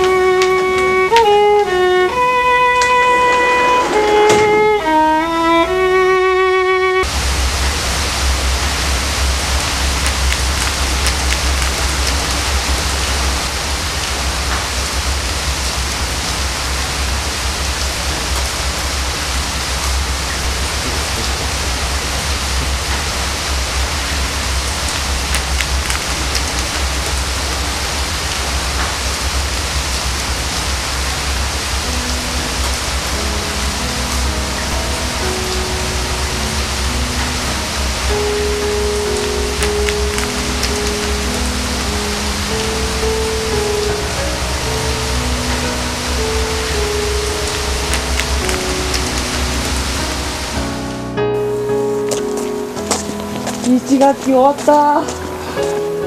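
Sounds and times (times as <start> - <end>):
violin melody: 0.0 - 7.8, 31.8 - 56.0
soft musical notes: 0.0 - 13.5, 31.4 - 56.0
steady rain hissing: 0.0 - 56.0.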